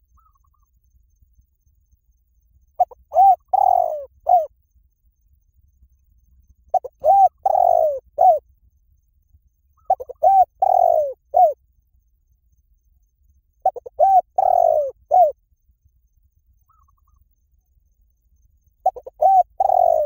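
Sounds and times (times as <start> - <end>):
dove cooing: 2.8 - 4.5, 6.7 - 8.4, 9.8 - 11.6, 13.6 - 15.4, 18.8 - 20.0.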